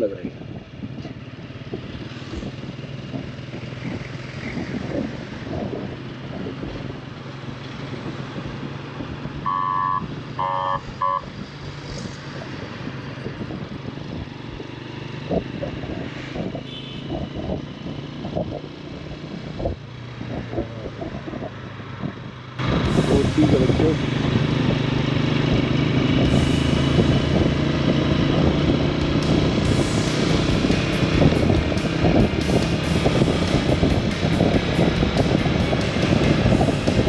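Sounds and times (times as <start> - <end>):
road and wind noise: 0.0 - 37.0
motorcycle engine running: 0.3 - 37.0
horn blasts: 9.4 - 11.3.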